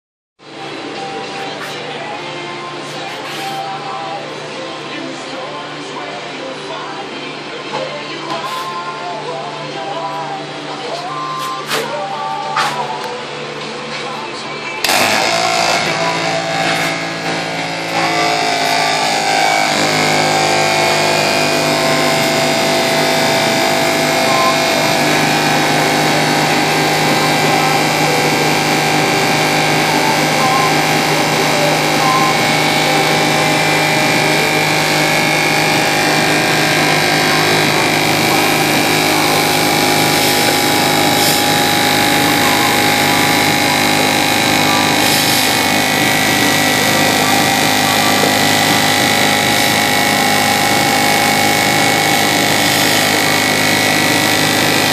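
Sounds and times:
pump motor humming and whining: 0:00.4 - 0:54.9.

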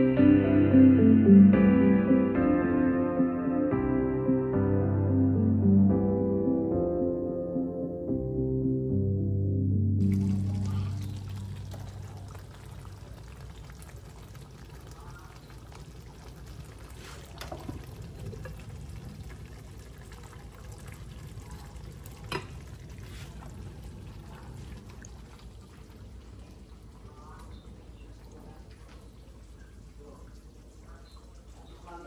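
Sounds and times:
stew bubbling: 0:10.0 - 0:32.0.

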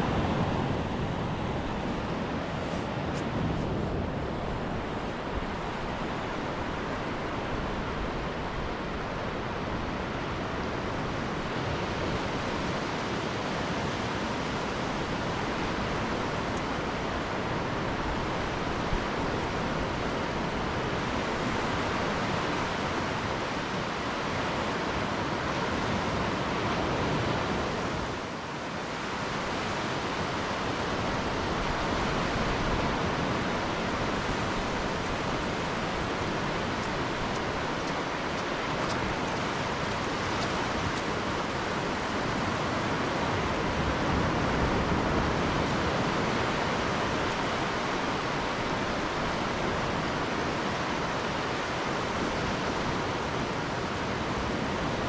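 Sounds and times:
distant surf: 0:00.0 - 0:55.0
wind: 0:00.0 - 0:55.0.

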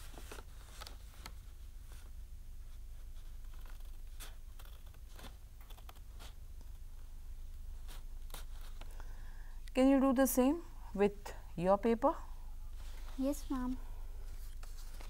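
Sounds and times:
low steady hum: 0:00.0 - 0:15.0
paper rustling: 0:03.0 - 0:06.8, 0:14.2 - 0:15.0.

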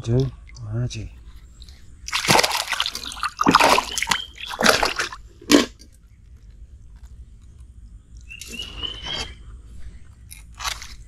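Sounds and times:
fish splashing and thrashing in water: 0:02.0 - 0:05.8.

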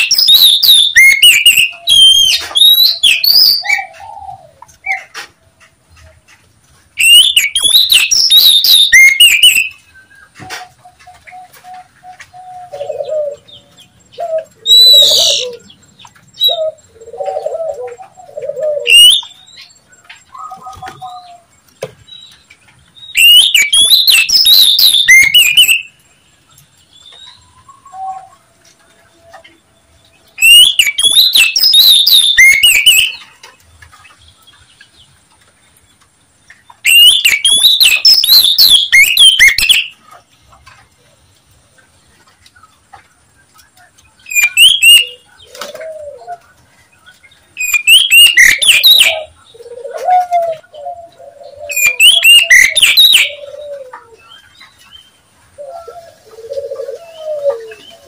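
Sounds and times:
bird harsh chattering calls: 0:00.0 - 0:09.9, 0:36.8 - 0:40.0, 0:44.3 - 0:45.8, 0:47.6 - 0:49.8, 0:50.4 - 0:53.8
lower bird calls: 0:00.0 - 0:33.6, 0:36.6 - 0:41.0, 0:47.6 - 0:54.6, 0:55.6 - 0:58.0.

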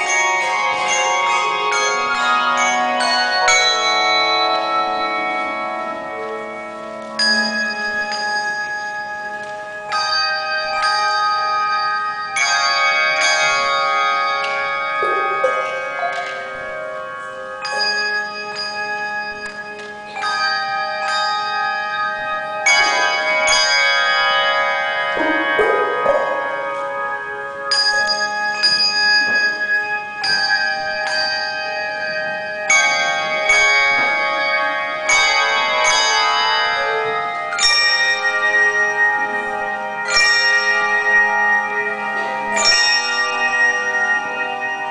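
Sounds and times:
handbell chords ringing: 0:00.0 - 0:44.9.

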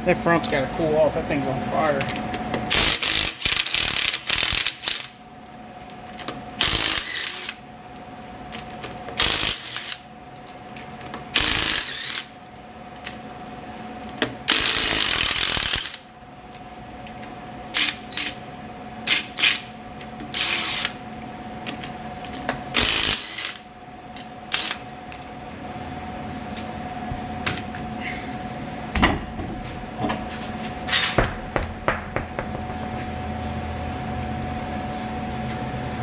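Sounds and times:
impact wrench bursts: 0:02.7 - 0:05.2, 0:06.6 - 0:07.6, 0:09.2 - 0:10.0, 0:11.3 - 0:12.3, 0:14.5 - 0:16.0, 0:17.7 - 0:18.4, 0:19.1 - 0:19.7, 0:20.3 - 0:21.0, 0:22.7 - 0:23.6, 0:24.5 - 0:24.8.

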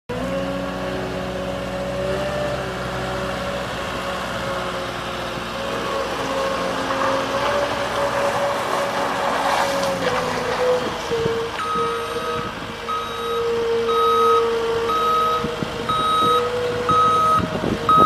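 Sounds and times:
diesel engine running: 0:00.1 - 0:18.0
rough loud noise: 0:02.6 - 0:13.1.

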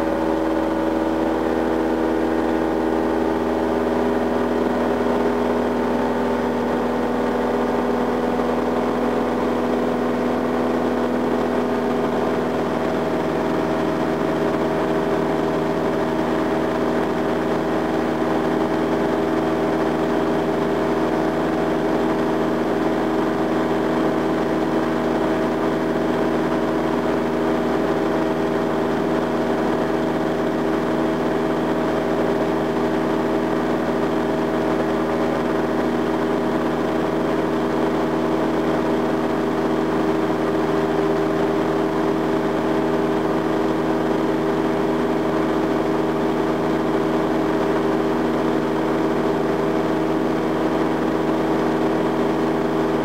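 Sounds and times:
light aircraft engine drone: 0:00.0 - 0:53.0.

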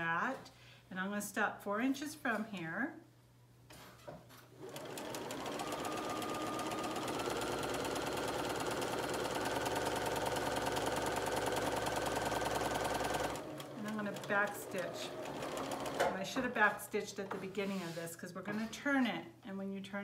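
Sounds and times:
sewing machine stitching: 0:04.6 - 0:16.2.

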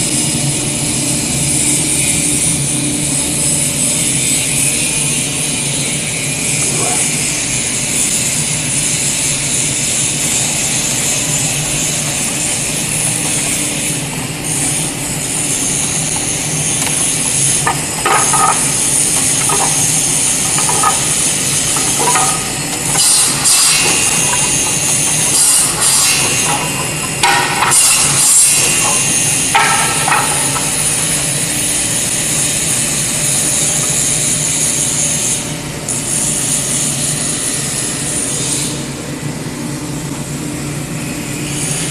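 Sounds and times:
saw machine whining: 0:13.8 - 0:31.5
saws cutting boards: 0:15.5 - 0:31.1.

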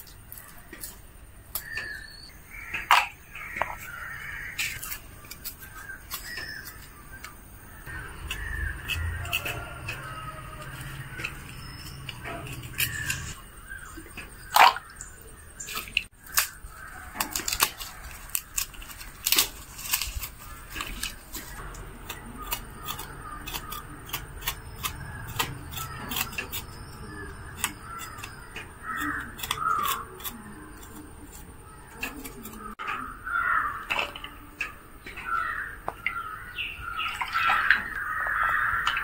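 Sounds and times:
crow cawing: 0:01.6 - 0:04.8, 0:07.7 - 0:11.6, 0:27.1 - 0:30.0, 0:32.6 - 0:34.1, 0:35.2 - 0:39.0
papery skins being peeled: 0:03.4 - 0:13.4, 0:15.7 - 0:32.8
knife cutting shallots: 0:07.9 - 0:13.4, 0:17.2 - 0:32.8.

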